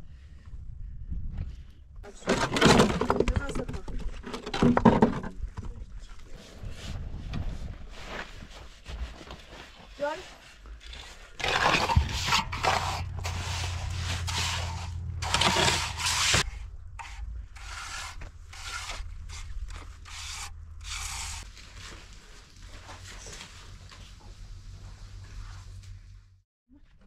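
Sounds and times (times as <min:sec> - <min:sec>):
shovels scraping gravelly earth: 0:10.0 - 0:22.2
trowel scraping wet cement: 0:10.8 - 0:21.5
low steady hum: 0:11.4 - 0:26.3.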